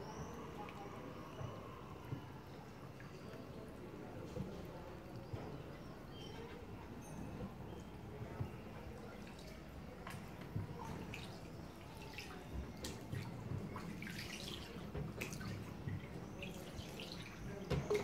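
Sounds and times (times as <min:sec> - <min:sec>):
water lapping and dripping: 0:00.2 - 0:18.0
small water splashes: 0:09.2 - 0:18.0.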